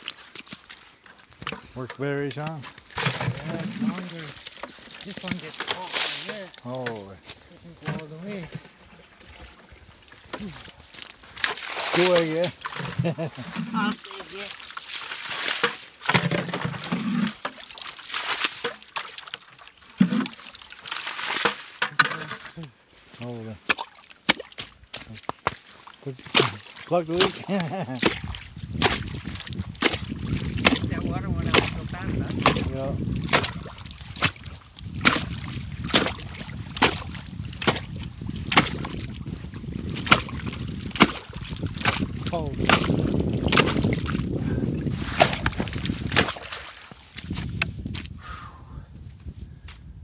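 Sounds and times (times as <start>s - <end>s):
water sloshing and splashing: 0.0s - 47.6s
ice chisel chopping into ice: 23.7s - 25.6s, 26.2s - 30.9s, 32.4s - 33.6s, 35.0s - 39.0s, 40.0s - 43.9s, 45.1s - 46.6s
wind noise on microphone: 28.1s - 50.0s.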